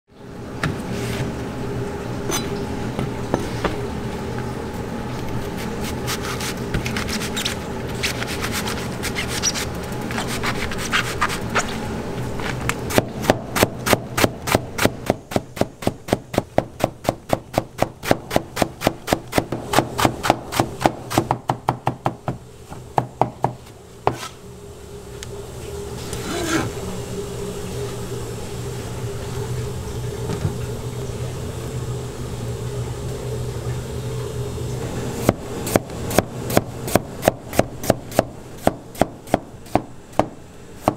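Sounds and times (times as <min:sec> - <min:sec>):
steady low hum: 0:00.1 - 0:40.9.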